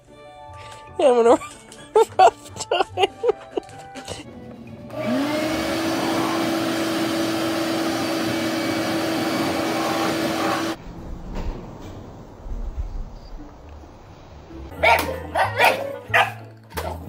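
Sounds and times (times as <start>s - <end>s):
shop vacuum motor whining: 4.4s - 10.8s.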